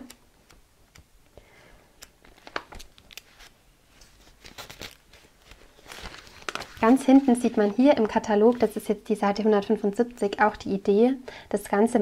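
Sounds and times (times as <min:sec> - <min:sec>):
pages of paper flicking: 0:02.0 - 0:03.5, 0:04.1 - 0:08.7.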